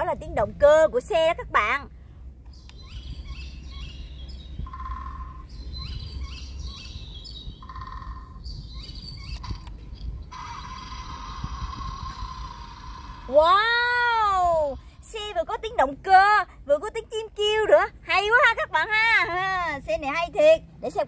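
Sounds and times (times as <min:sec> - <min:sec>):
recorded birdsong from toy speaker: 0:02.4 - 0:15.9.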